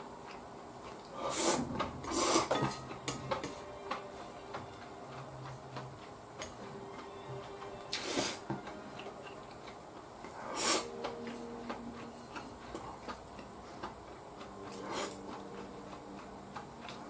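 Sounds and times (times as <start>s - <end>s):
person slurping: 1.0s - 2.6s, 10.3s - 11.4s, 14.7s - 15.4s
chopsticks clicking on dishes: 1.8s - 17.0s.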